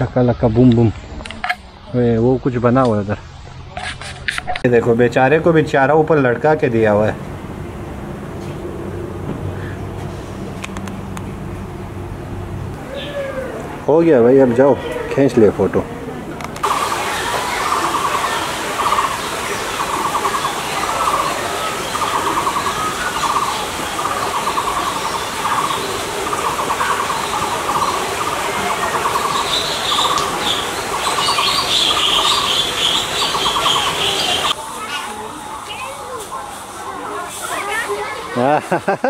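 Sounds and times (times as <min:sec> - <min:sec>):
buzzy bird trill: 0:16.6 - 0:36.0
high bird twittering: 0:16.6 - 0:36.3.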